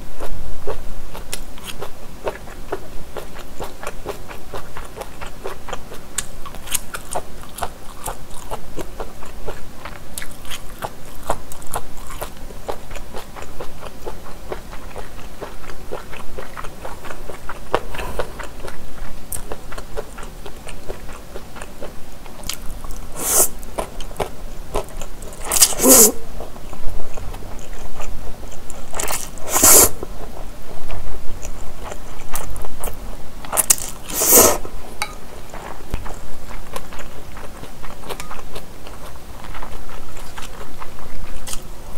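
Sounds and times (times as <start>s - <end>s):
wet chewing: 0.2s - 41.7s
noodle slurping: 23.2s - 23.6s, 25.5s - 26.2s, 29.0s - 30.0s, 34.1s - 34.7s.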